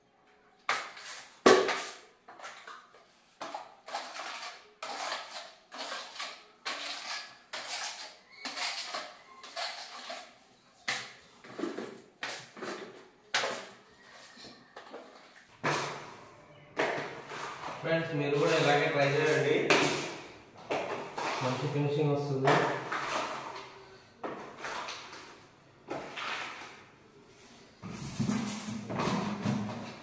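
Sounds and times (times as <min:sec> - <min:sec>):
putty blade scraping wall: 0:03.4 - 0:16.0, 0:22.5 - 0:23.7.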